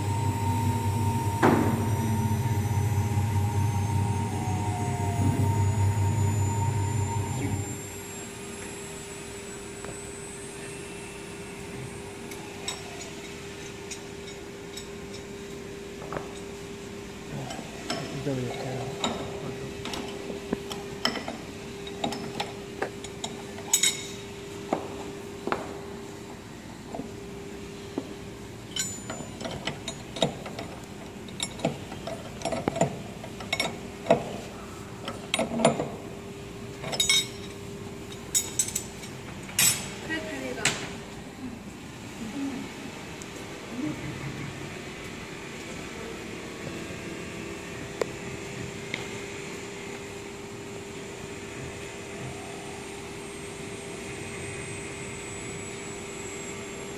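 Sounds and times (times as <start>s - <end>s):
router spindle whine: 0.0s - 13.4s
steady hum: 0.0s - 29.0s.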